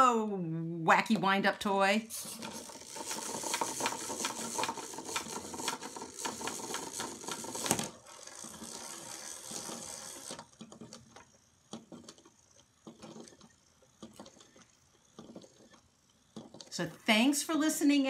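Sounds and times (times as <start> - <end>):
wind-up toy ticking buzz: 2.6 - 10.4.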